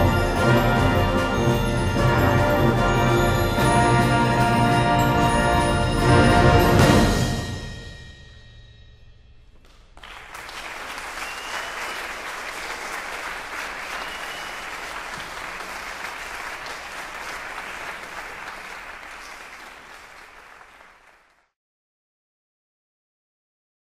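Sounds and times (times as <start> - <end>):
audience applauding: 10.0 - 21.5.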